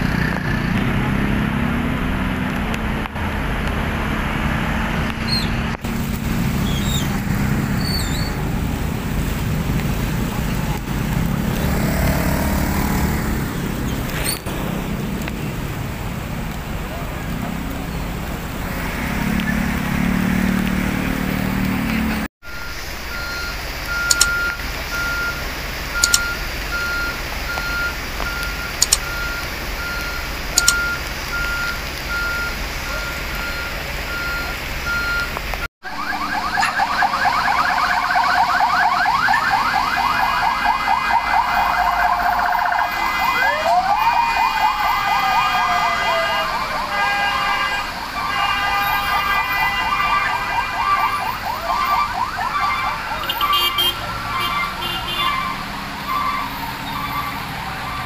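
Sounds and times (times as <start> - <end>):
heavy rain: 0.0 - 58.0
traffic engines running: 0.0 - 58.0
truck reversing beeper: 11.6 - 15.0, 22.2 - 55.3, 56.0 - 58.0
emergency siren: 16.5 - 58.0
sharp clicks: 23.8 - 24.6, 26.0 - 26.4, 27.5 - 32.0.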